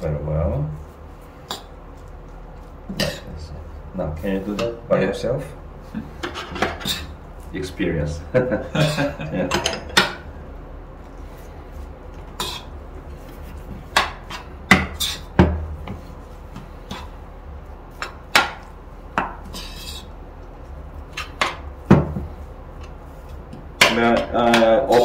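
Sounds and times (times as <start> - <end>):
spoon scraping ceramic bowl: 19.4 - 20.1.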